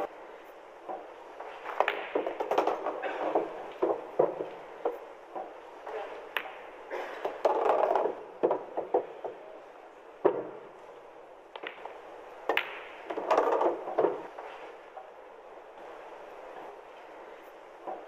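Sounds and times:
muffled background noise: 0:00.0 - 0:18.0
pool balls clicking together: 0:00.8 - 0:15.2
cue tip striking ball: 0:01.0 - 0:05.6, 0:10.2 - 0:10.7, 0:11.5 - 0:14.3.

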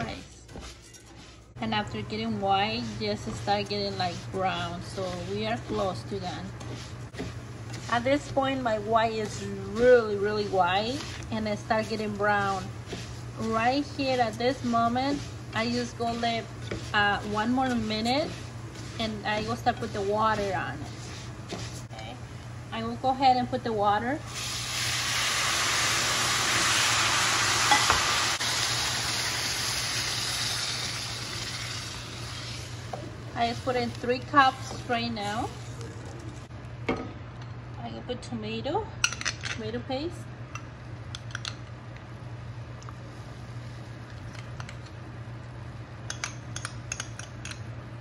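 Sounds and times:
steady low hum: 0:00.0 - 0:28.6
water sizzling in hot oil: 0:24.2 - 0:33.0.

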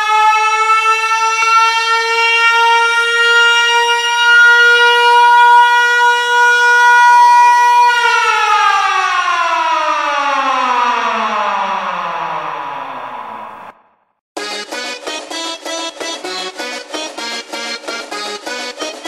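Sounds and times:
air-raid siren wailing: 0:00.0 - 0:14.0.

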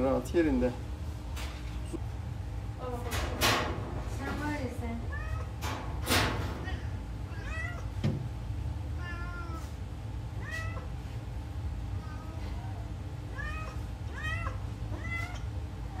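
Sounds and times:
steady low hum: 0:00.0 - 0:16.0
kittens mewing: 0:06.5 - 0:08.0, 0:08.9 - 0:11.0, 0:11.9 - 0:16.0.

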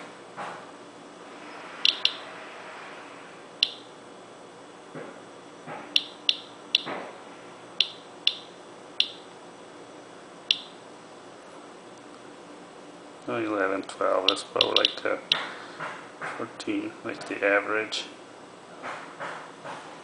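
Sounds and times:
geiger counter clicking: 0:01.9 - 0:02.2, 0:03.6 - 0:03.9, 0:05.9 - 0:07.0, 0:07.8 - 0:09.3, 0:10.5 - 0:10.8, 0:14.2 - 0:15.4.

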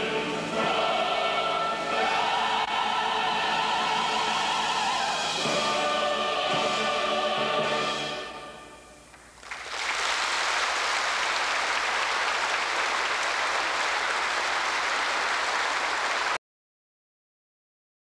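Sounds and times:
orchestra and choir chord: 0:00.0 - 0:09.1
audience applause: 0:09.4 - 0:16.4.

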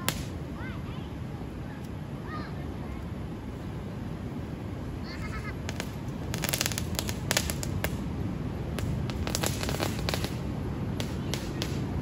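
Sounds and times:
firecrackers popping: 0:00.0 - 0:00.4, 0:05.3 - 0:12.0.

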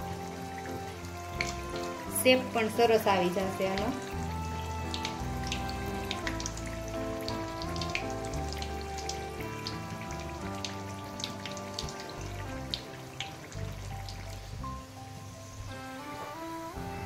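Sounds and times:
oil crackling and popping: 0:00.0 - 0:02.2, 0:03.8 - 0:14.8
background music with held notes: 0:00.0 - 0:17.0.

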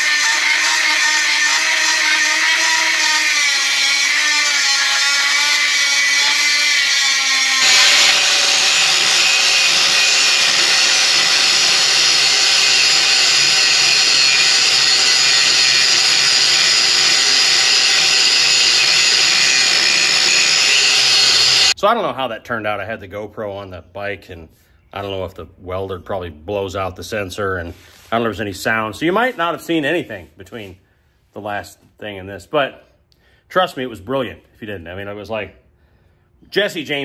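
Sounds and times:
angle grinder grinding metal: 0:00.0 - 0:21.8.

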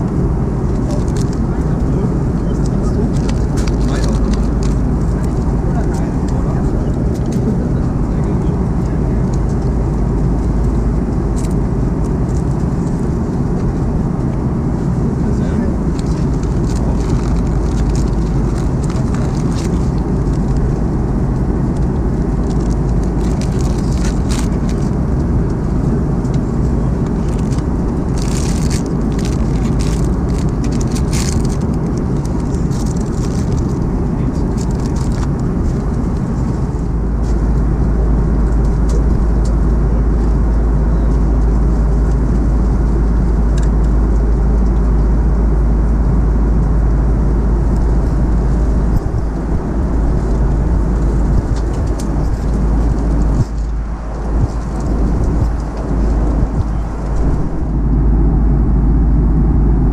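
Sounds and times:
jet engine rumble in cabin: 0:00.0 - 0:59.9
light rattles and clicks: 0:00.7 - 0:37.5, 0:50.0 - 0:57.4.

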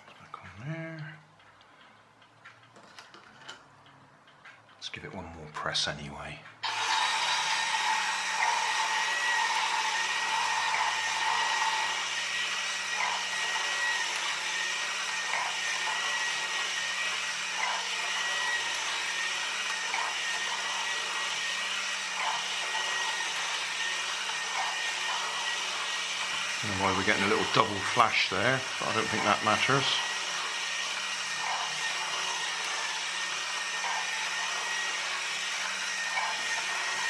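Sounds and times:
small electric motor whirring: 0:06.6 - 0:37.0.

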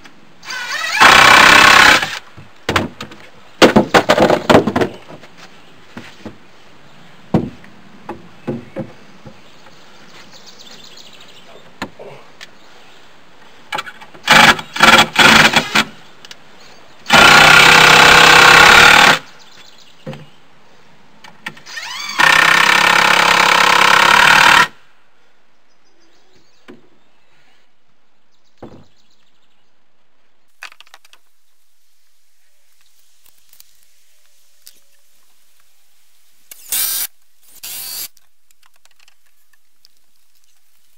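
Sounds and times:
power drill driving screws: 0:00.4 - 0:02.2, 0:14.2 - 0:15.9, 0:17.1 - 0:19.2, 0:21.6 - 0:24.8, 0:36.5 - 0:38.2
lumber knocking: 0:07.3 - 0:09.4.

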